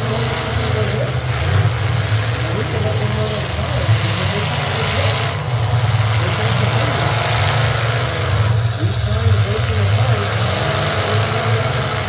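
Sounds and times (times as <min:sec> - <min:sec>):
truck engines rumbling: 0:00.0 - 0:12.0.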